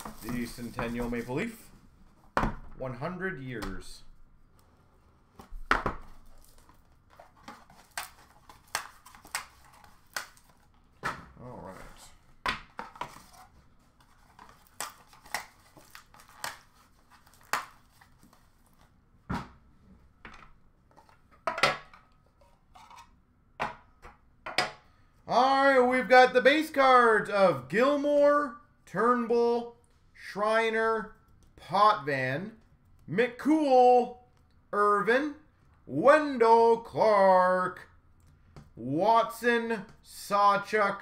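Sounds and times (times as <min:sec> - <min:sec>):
cardboard packaging rustling and tearing: 0:00.0 - 0:01.7, 0:06.1 - 0:10.8, 0:13.0 - 0:18.9.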